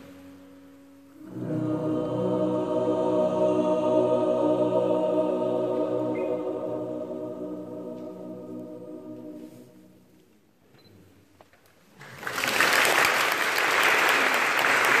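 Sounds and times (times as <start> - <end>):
choir singing a held chord: 1.2 - 10.2
audience applause: 12.0 - 15.0.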